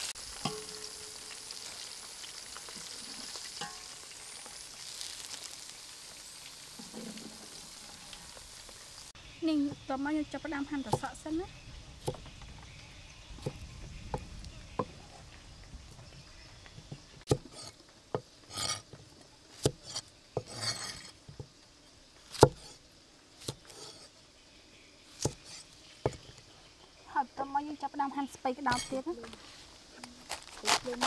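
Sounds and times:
knife striking wooden board: 0:22.4 - 0:22.7.

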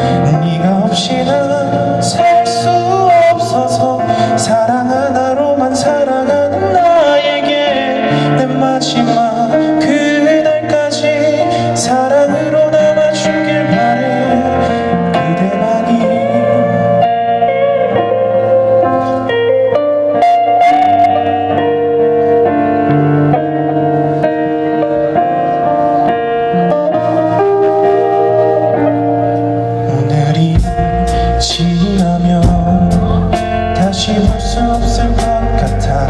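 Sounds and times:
bass guitar: 0:00.0 - 0:36.0
electric guitars: 0:00.0 - 0:36.0
keyboard: 0:00.0 - 0:36.0
drums: 0:28.7 - 0:36.0.

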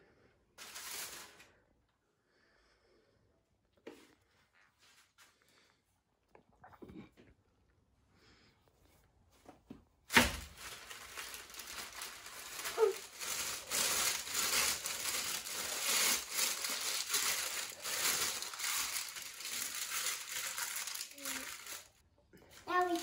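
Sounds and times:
baking paper crinkling: 0:00.6 - 0:01.6, 0:10.1 - 0:22.0, 0:22.6 - 0:23.0.

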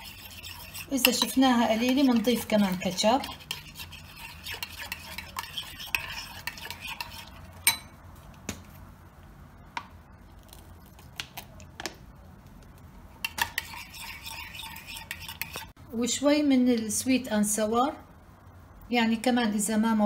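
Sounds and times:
spoon stirring in a ceramic bowl: 0:00.0 - 0:08.0, 0:13.2 - 0:15.8
sharp spoon clink: 0:07.6 - 0:08.0.

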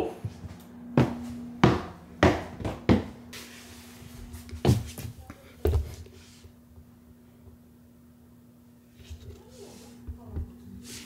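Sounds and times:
low steady hum: 0:00.0 - 0:11.0
footsteps on wooden stairs: 0:00.2 - 0:03.3.

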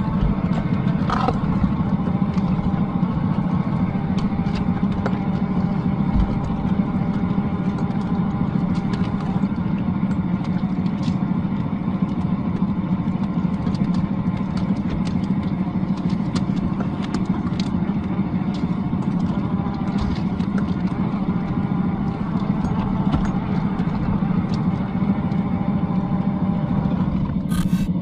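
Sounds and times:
rc car motor humming: 0:27.4 - 0:28.0.

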